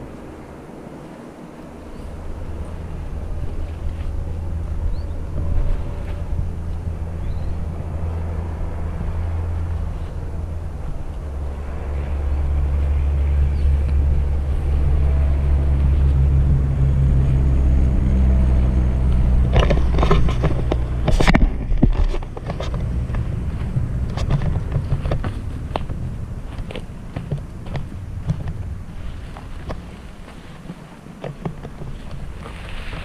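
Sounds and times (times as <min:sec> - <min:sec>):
wind buffeting microphone: 0:00.0 - 0:33.0
scraping against brush: 0:19.0 - 0:33.0
footsteps on rocky path: 0:19.1 - 0:33.0.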